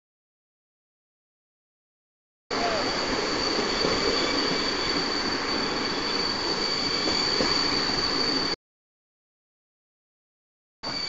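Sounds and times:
high-pitched wheel squeal: 2.5 - 8.6
train wheels rolling on track: 2.5 - 8.6.

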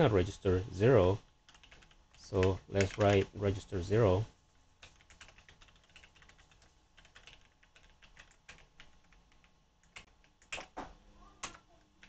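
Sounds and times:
typing on computer keyboard: 1.5 - 3.3, 4.8 - 10.8, 11.4 - 12.0.

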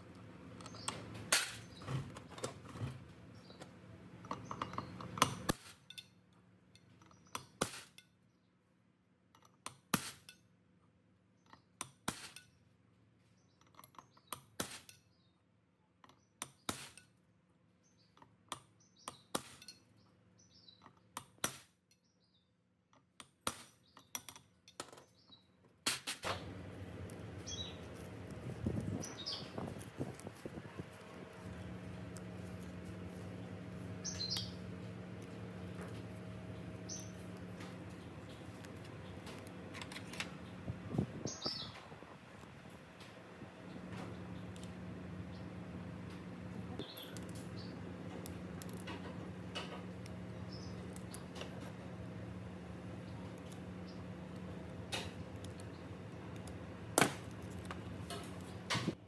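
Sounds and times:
rustling scraping noise: 1.0 - 3.6
metal parts clinking: 4.2 - 8.1.

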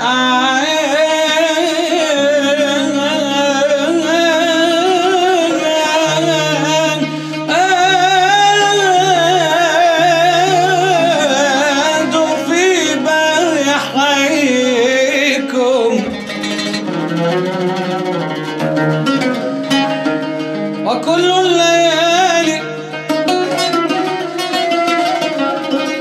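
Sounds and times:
man singing ornamented line: 0.0 - 16.8, 20.8 - 26.0
plucked string instrument: 0.0 - 26.0.

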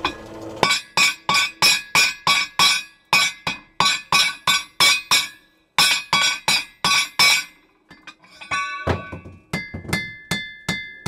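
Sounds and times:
hammer striking steel on anvil: 0.0 - 11.0.

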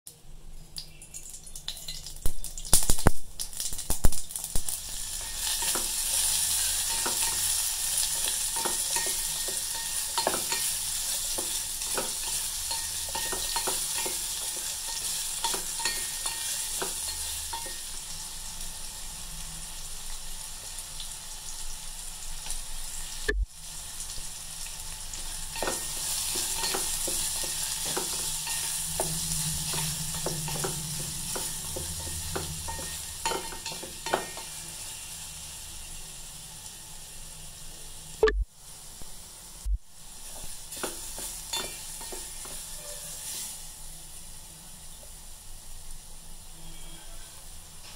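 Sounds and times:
seeds crackling in hot oil: 0.5 - 47.9
mango sizzling: 0.6 - 47.9
wooden spatula scraping pan: 25.6 - 34.5.

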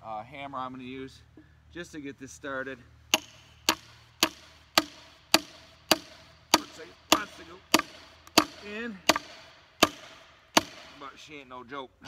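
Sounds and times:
hammer striking wedge in log: 3.1 - 11.2.

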